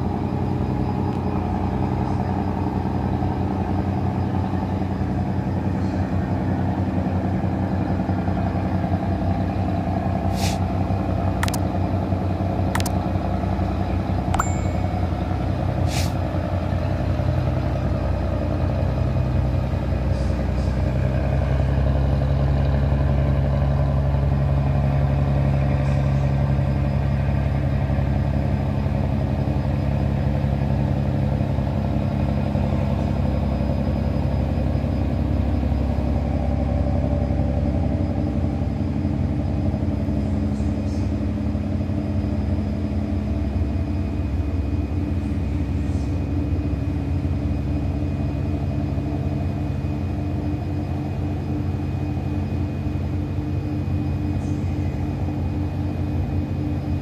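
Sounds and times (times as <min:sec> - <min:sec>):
boat engine running: 0:00.0 - 0:57.0.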